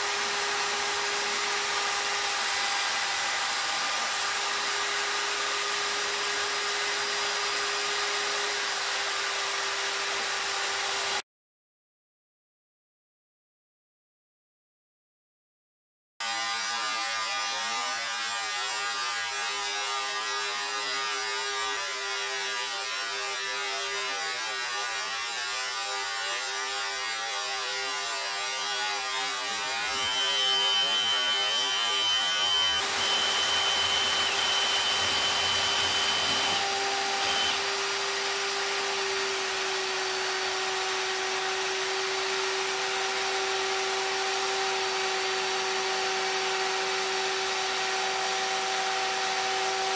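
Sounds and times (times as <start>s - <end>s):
lathe motor hum: 29.7s - 41.5s
thin high tone: 29.9s - 37.6s.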